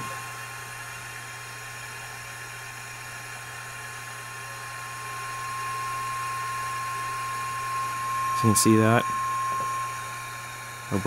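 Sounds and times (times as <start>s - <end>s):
steady test tone from speaker: 0.0s - 0.7s, 4.3s - 11.0s
hiss and low hum: 0.0s - 11.0s.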